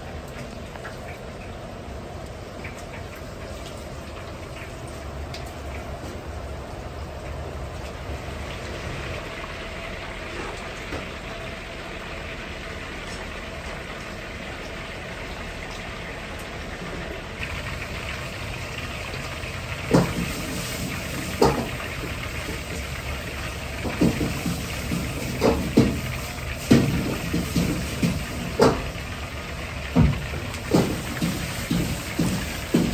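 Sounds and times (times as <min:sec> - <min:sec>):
chicken deep-frying in oil: 0:00.0 - 0:32.9
low kitchen rumble: 0:00.0 - 0:32.9
sharp knocks: 0:30.0 - 0:32.9.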